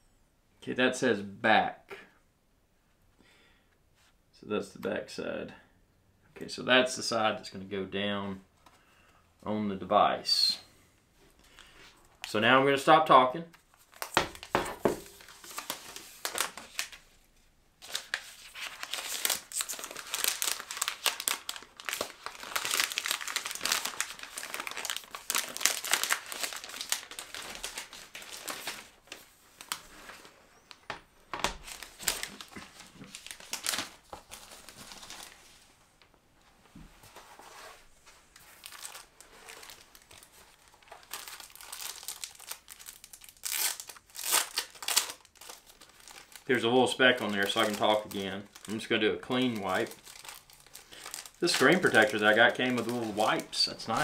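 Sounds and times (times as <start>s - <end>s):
plastic film crinkling: 13.6s - 35.7s, 38.1s - 54.0s.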